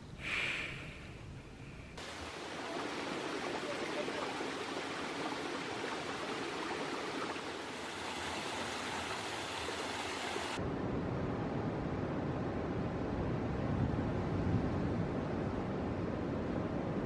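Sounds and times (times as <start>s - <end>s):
ocean surf: 2.0s - 10.6s
small waterfall splashing: 2.0s - 10.6s
stream flowing over rocks: 2.0s - 10.6s.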